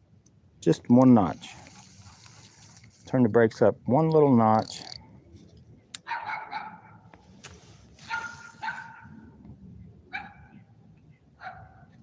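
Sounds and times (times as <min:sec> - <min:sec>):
dog barking: 0:06.0 - 0:07.0, 0:08.1 - 0:09.2, 0:10.1 - 0:10.6, 0:11.4 - 0:12.0.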